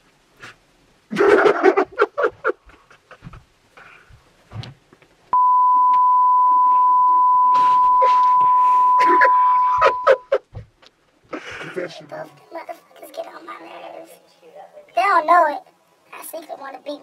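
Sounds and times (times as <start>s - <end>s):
high-pitched censor bleep: 5.4s - 10.3s.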